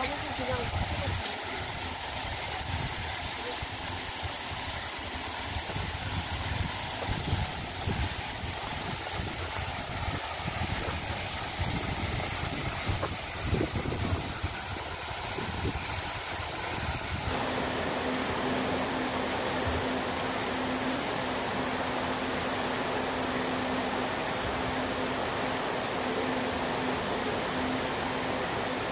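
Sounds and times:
steady low hum: 0.0 - 28.9
waterfall rushing: 0.0 - 28.9
wind rumbling on microphone: 5.6 - 17.3.

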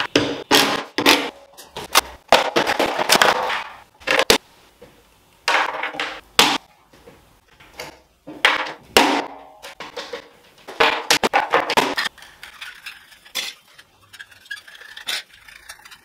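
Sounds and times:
scraping: 9.7 - 16.0.

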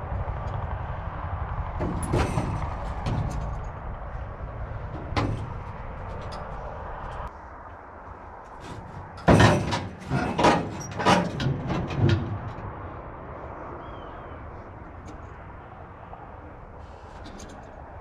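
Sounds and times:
sheet metal banging and rattling: 1.6 - 7.3, 8.6 - 12.6.

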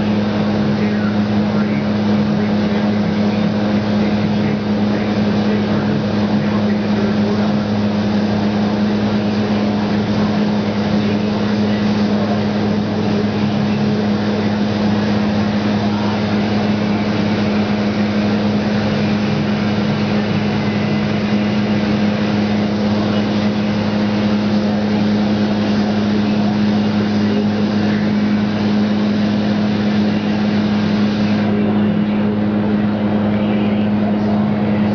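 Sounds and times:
paint booth mechanical drone: 0.0 - 34.9
spray gun hissing: 13.0 - 31.5.

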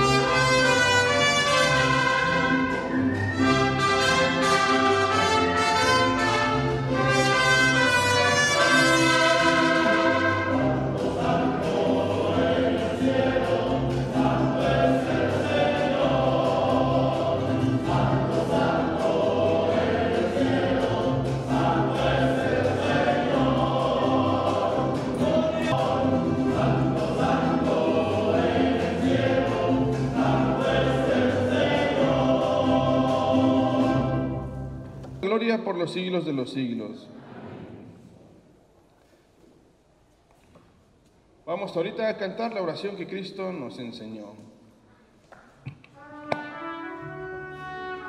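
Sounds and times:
choir singing a hymn: 0.0 - 34.8
instrumental accompaniment: 0.0 - 35.2.

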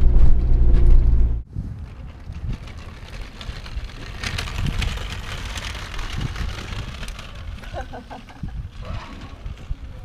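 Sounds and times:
engine and road rumble: 0.0 - 7.7
outdoor street ambience: 0.0 - 10.0
wind on microphone: 0.0 - 10.0.

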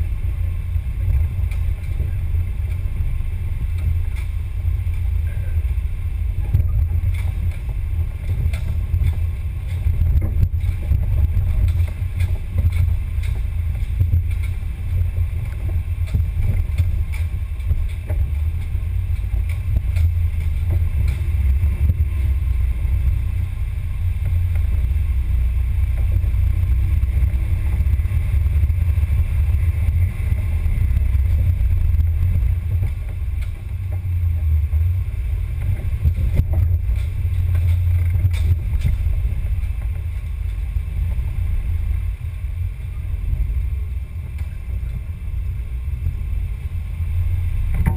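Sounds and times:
rc car motor rumble: 0.0 - 47.9
chassis clicks and knocks: 6.4 - 22.4, 25.8 - 41.2, 47.6 - 47.9.

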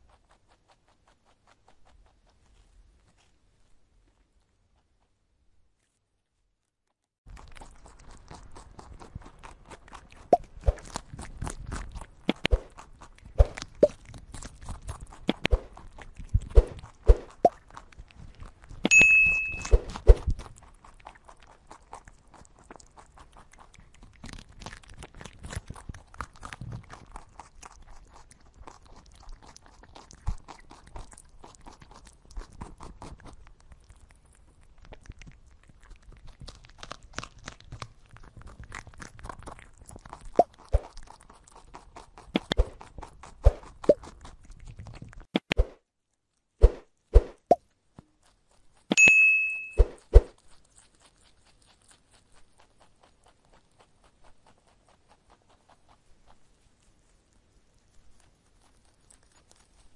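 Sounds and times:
rabbit crunching greens: 0.0 - 6.7, 7.3 - 59.9
rabbit nibbling: 0.0 - 6.7, 7.3 - 59.9
high-pitched ping: 18.9 - 19.9, 49.0 - 50.0.

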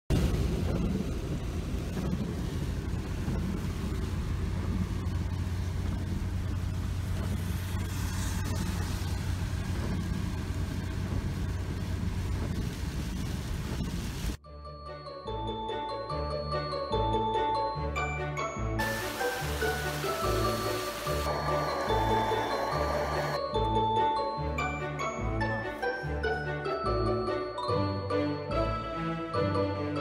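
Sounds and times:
engine and tyre rumble: 0.1 - 14.4, 18.8 - 27.1
hiss of wet tyres and rain: 0.1 - 14.4, 18.8 - 23.4.

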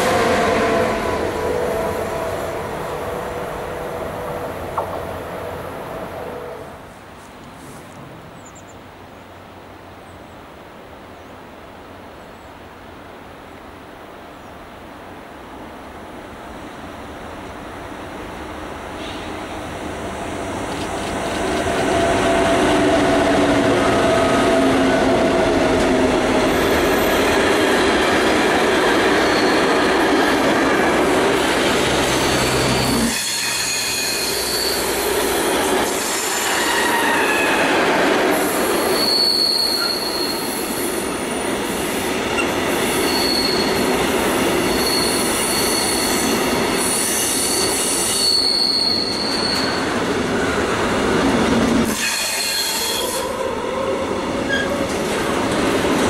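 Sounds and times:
freight train rolling by: 0.0 - 8.6, 15.5 - 56.0
electric locomotives passing: 0.0 - 8.7, 15.9 - 56.0
train wheels squealing: 29.1 - 30.0, 32.5 - 37.7, 38.3 - 41.1, 41.7 - 44.0, 44.6 - 50.0, 51.8 - 53.4, 54.5 - 54.8.

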